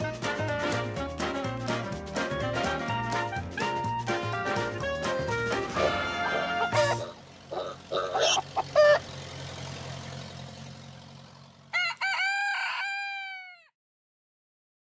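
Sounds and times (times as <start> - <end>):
rooster crowing: 7.6 - 9.0, 11.7 - 13.7.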